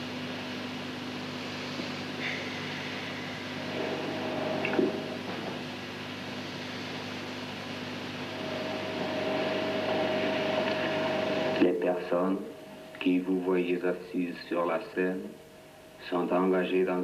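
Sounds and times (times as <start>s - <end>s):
recording hiss and hum: 0.0s - 17.0s.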